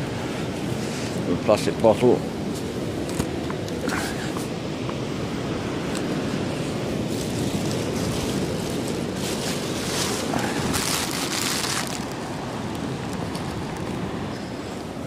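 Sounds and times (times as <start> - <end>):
surf washing onto a beach: 0.0 - 15.0
wind rumble on microphone: 0.0 - 15.0.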